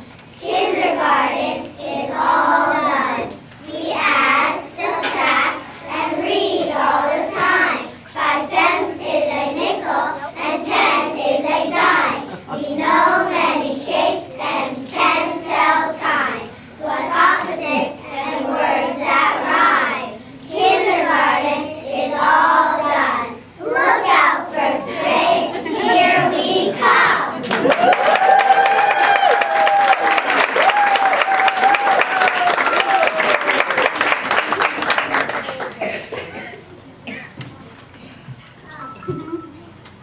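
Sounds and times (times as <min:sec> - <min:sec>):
children singing together: 0:00.4 - 0:27.4
audience applause: 0:27.4 - 0:35.8.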